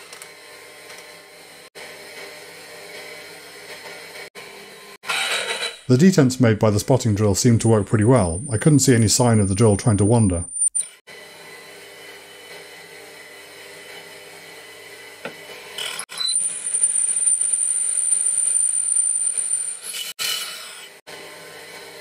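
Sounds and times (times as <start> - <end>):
drill cutting steel whine: 5.0 - 5.9, 10.5 - 11.0, 15.7 - 22.0.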